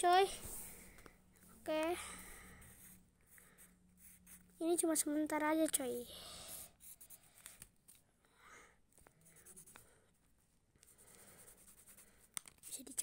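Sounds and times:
pencil scratching on paper: 2.3 - 5.0, 6.4 - 7.6, 9.2 - 9.9, 10.8 - 13.0.

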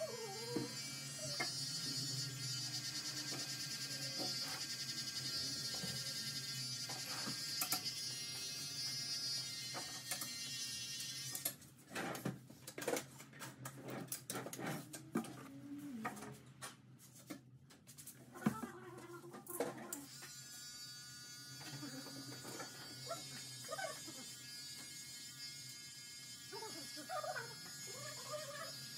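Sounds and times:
electric hair trimmer buzzing: 0.0 - 11.5, 20.0 - 28.9.

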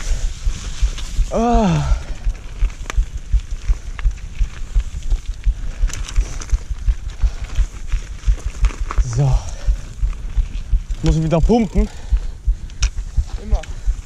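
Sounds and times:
wind buffeting microphone: 0.0 - 14.0
bike clicks and rattles: 2.2 - 9.0.

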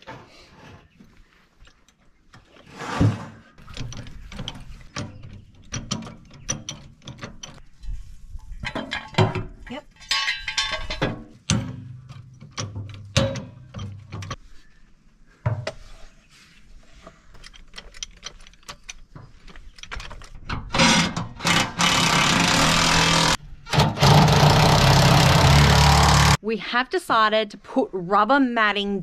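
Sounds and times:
loud steady machine noise: 21.7 - 26.4.

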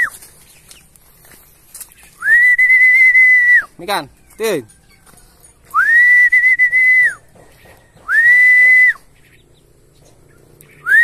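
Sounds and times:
high whistle calls: 0.0 - 0.2, 2.2 - 3.8, 5.7 - 7.4, 8.0 - 9.1, 10.8 - 11.0.

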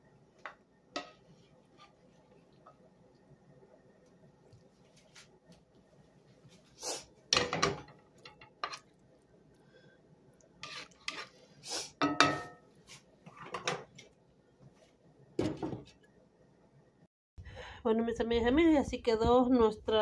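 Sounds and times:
dishes and cutlery clinking: 12.0 - 12.7.

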